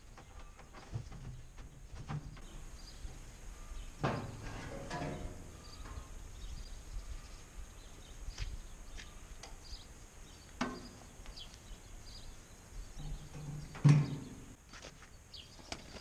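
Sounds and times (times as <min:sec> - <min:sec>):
faint bird chirps: 0:02.4 - 0:04.4, 0:05.2 - 0:14.6.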